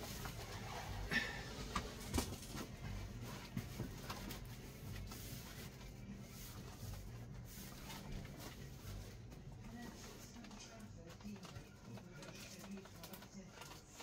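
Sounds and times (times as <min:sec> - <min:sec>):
cardboard parcel being handled: 0:00.0 - 0:14.0.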